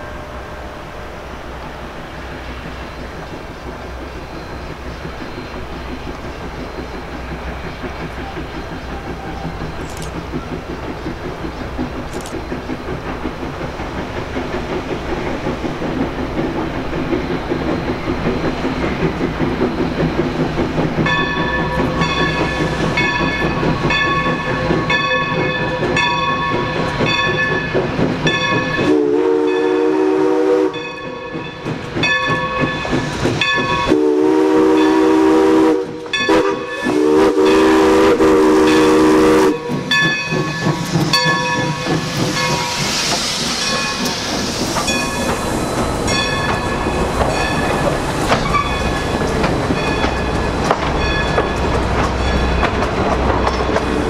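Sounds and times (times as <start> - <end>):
passing train rumble: 0.0 - 54.0
steam hissing: 0.0 - 54.0
steam locomotive whistle: 28.5 - 31.4, 33.6 - 40.5.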